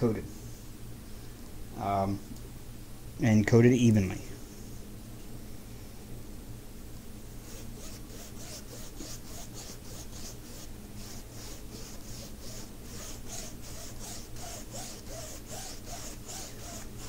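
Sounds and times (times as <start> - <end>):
foam brush swishing: 7.4 - 17.0.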